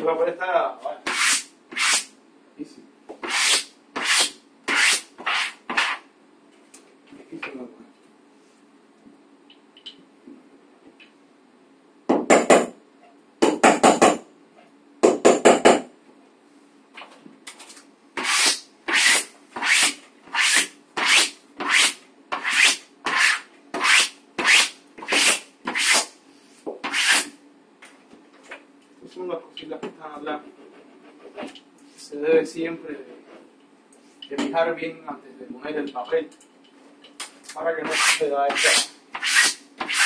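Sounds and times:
wallpaper being scrubbed: 0:01.1 - 0:02.1, 0:03.2 - 0:06.0, 0:18.2 - 0:26.1, 0:26.9 - 0:27.3, 0:37.9 - 0:40.0
rasping smoothing strokes: 0:37.8 - 0:40.0.

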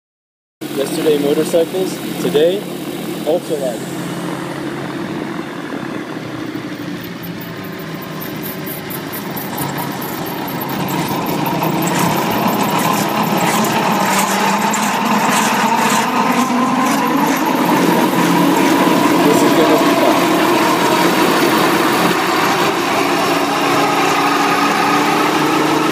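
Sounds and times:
gyrocopter engine and propeller: 0:00.6 - 0:25.9.

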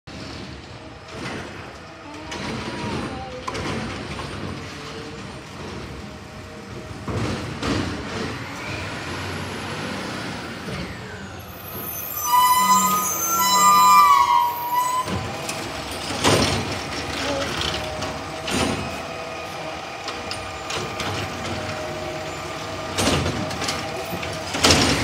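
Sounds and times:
garbage truck engine droning: 0:00.1 - 0:25.0
short squeal: 0:11.5 - 0:15.7.

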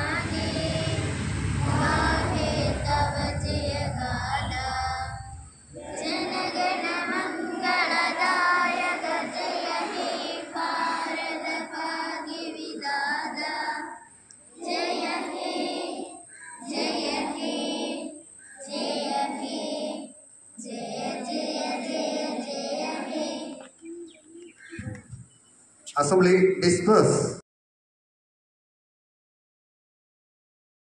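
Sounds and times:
children singing in unison: 0:00.0 - 0:24.2.

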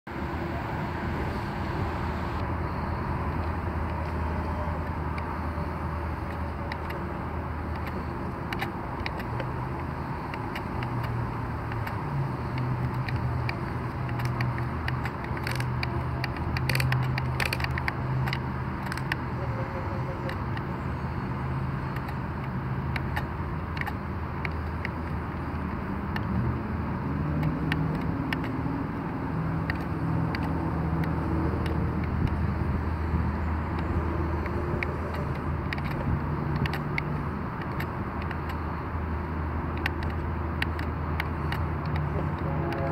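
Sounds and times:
small electric motors whirring: 0:27.0 - 0:38.7.

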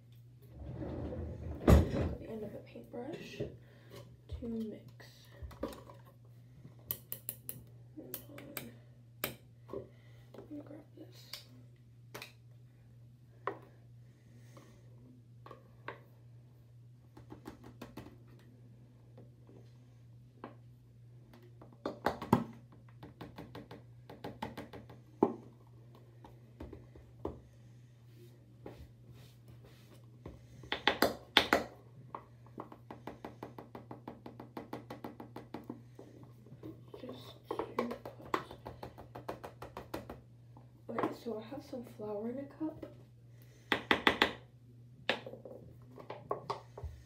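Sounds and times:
steady low hum: 0:00.0 - 0:21.8, 0:23.8 - 0:47.0.

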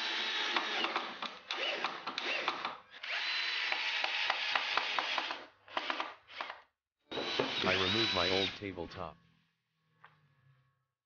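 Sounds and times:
cordless drill whining: 0:00.0 - 0:08.6.

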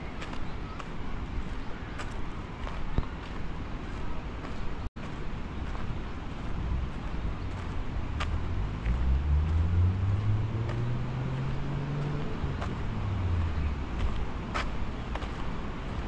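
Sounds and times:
steady traffic noise: 0:00.0 - 0:16.0
car passing by: 0:06.6 - 0:16.0.

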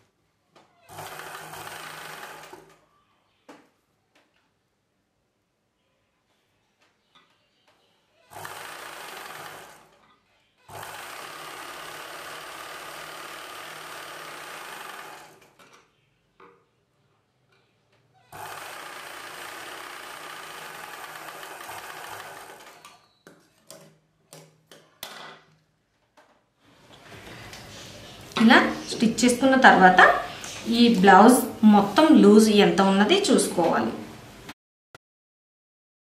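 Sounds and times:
sewing machine stitching: 0:00.9 - 0:02.8, 0:08.3 - 0:10.0, 0:10.7 - 0:15.6, 0:18.3 - 0:23.1.

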